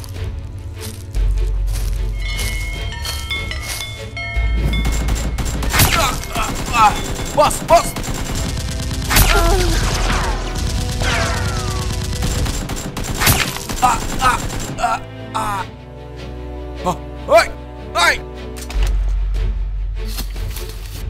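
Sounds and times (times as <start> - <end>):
background music: 0.0 - 21.0
gunfire sound effects: 4.9 - 14.6
people shouting: 5.6 - 8.0, 9.1 - 12.3, 13.2 - 15.7.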